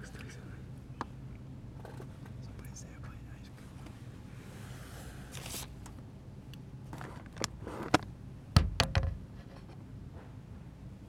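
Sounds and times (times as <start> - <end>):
sharp knocks: 8.6 - 9.3.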